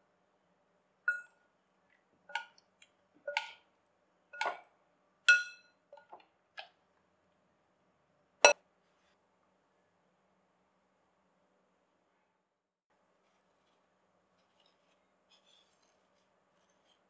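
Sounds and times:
spoon clinking on glass bowl: 1.1s - 1.4s, 5.3s - 6.1s.

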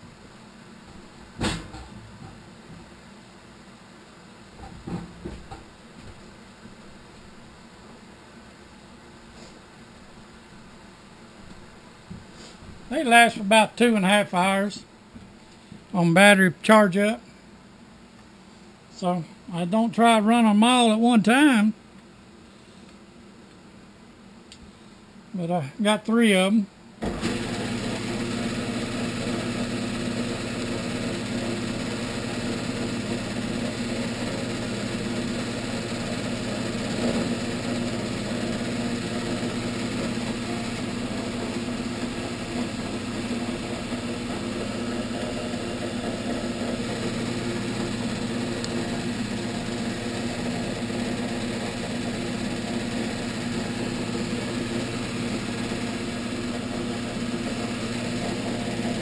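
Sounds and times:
milling machine humming: 27.0s - 59.0s.

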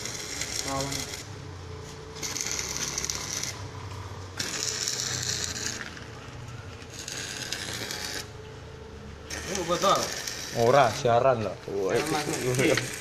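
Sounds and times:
electric drill boring into concrete: 4.4s - 6.0s, 6.9s - 8.3s, 9.3s - 11.0s, 11.9s - 13.0s.

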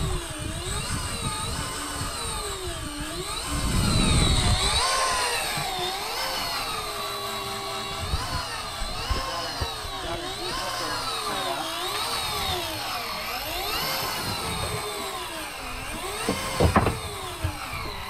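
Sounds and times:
fishing reel motor whining: 0.0s - 18.0s.

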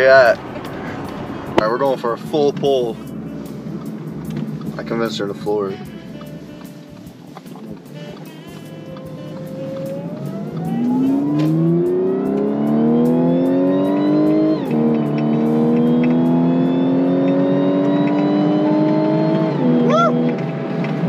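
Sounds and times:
car engine at full throttle: 0.0s - 21.0s
supercharger whine: 0.0s - 21.0s.

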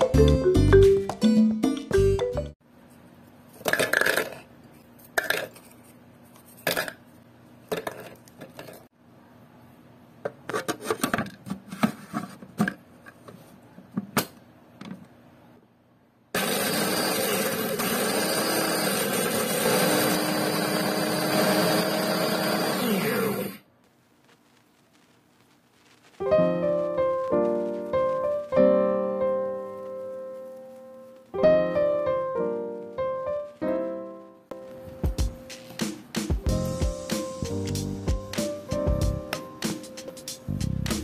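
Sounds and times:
food processor grinding: 16.4s - 23.6s.

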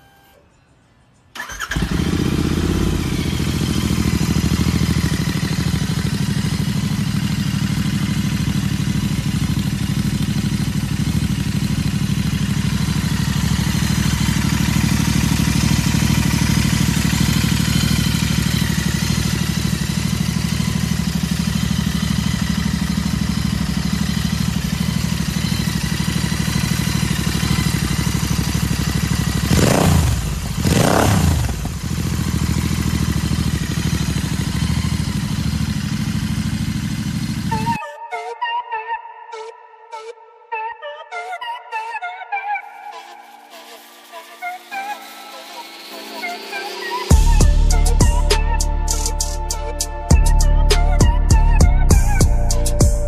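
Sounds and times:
motorcycle engine starting and idling: 1.4s - 37.8s, 45.4s - 49.2s.

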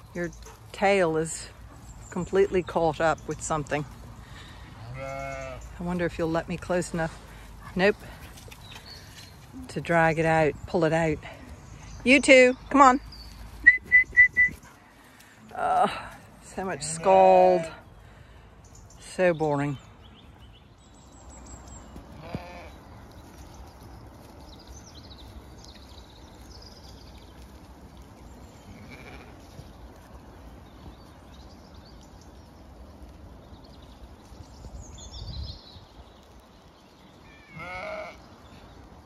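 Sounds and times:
sheep bleating: 4.8s - 5.7s, 22.2s - 22.8s, 28.7s - 29.4s, 37.5s - 38.2s.

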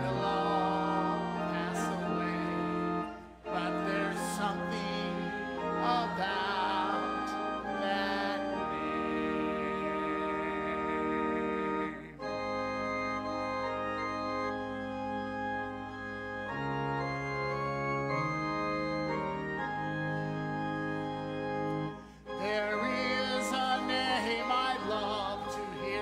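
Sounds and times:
voices singing: 0.0s - 12.4s, 22.3s - 26.0s
organ playing hymn chords: 0.0s - 26.0s.

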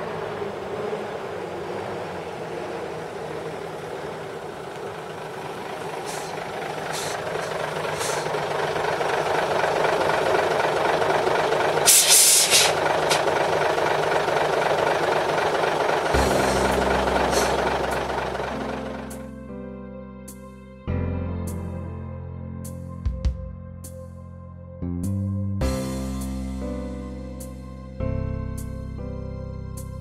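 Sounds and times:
truck diesel engine running: 0.0s - 19.6s
short air hisses: 6.0s - 7.2s, 11.9s - 13.2s
air brake hiss: 6.0s - 8.3s, 11.9s - 13.2s, 16.4s - 17.7s
music: 16.2s - 30.0s.

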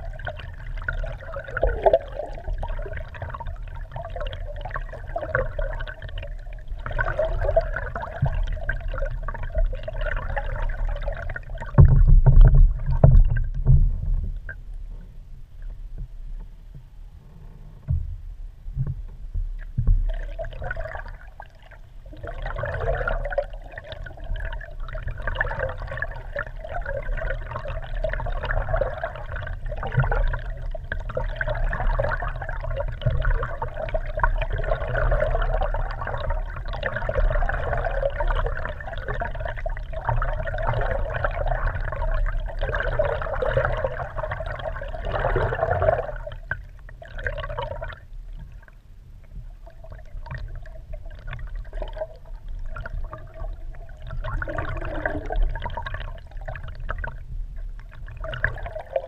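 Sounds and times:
muffled underwater rushing: 0.0s - 59.0s
steady low rumble: 10.4s - 22.2s, 45.7s - 58.9s.

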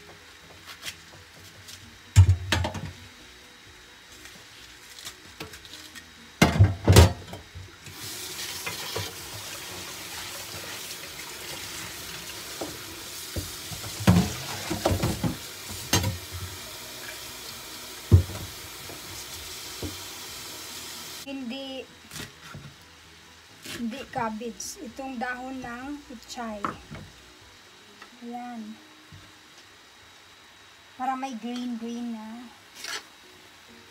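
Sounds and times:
kitchen tap running: 7.9s - 21.2s.

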